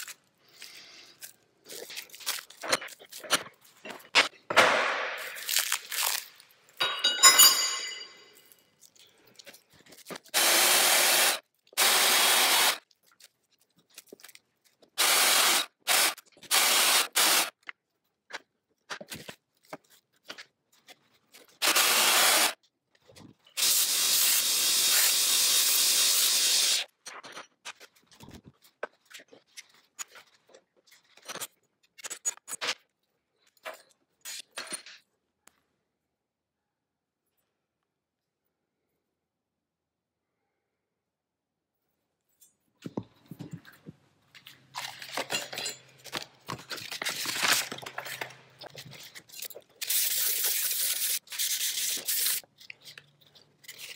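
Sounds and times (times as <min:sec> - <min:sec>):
plastic wrap crinkling and tearing: 0:00.0 - 0:04.1, 0:05.2 - 0:06.8, 0:12.7 - 0:15.0, 0:44.4 - 0:45.4, 0:46.0 - 0:53.9.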